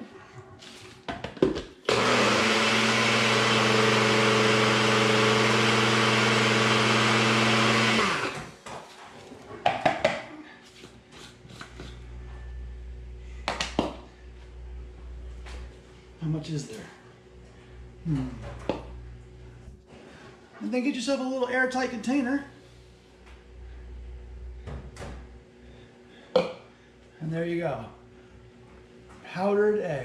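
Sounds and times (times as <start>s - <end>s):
blender motor grinding: 1.9s - 8.6s.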